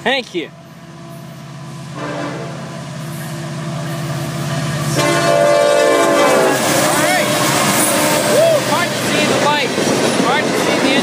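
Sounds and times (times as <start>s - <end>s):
locomotive rumble: 0.0s - 11.0s
train horn blasts: 2.0s - 2.7s, 4.9s - 8.4s.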